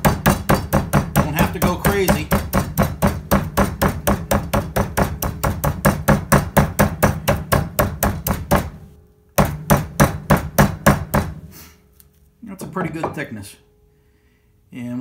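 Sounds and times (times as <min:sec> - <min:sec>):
meat mallet pounding: 0:00.0 - 0:08.8, 0:09.4 - 0:11.4.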